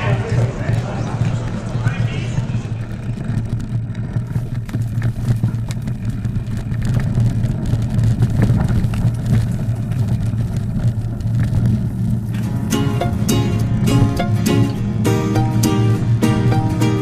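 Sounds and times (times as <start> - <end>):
bike clicks and rattles: 0.0 - 12.6
wind buffeting microphone: 0.0 - 15.1.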